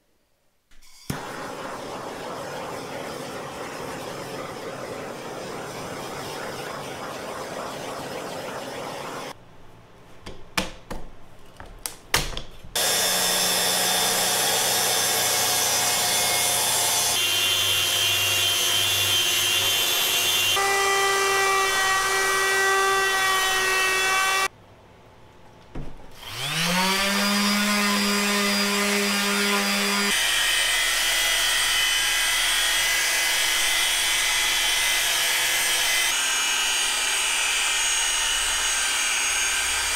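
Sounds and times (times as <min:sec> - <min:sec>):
polisher running: 0:12.8 - 0:20.7
power tool spinning up: 0:12.8 - 0:20.8
electric sander whining: 0:26.2 - 0:33.4.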